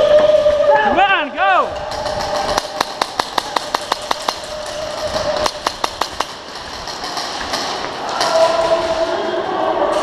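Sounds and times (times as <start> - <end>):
voices: 7.9 - 10.0.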